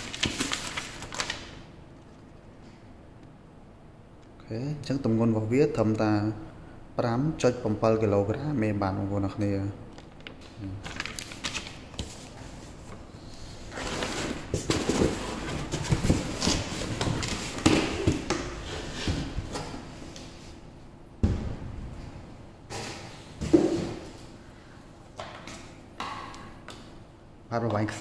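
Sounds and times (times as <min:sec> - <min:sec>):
paper and cardboard rustling: 0:00.0 - 0:01.5, 0:10.2 - 0:13.0, 0:13.7 - 0:20.6.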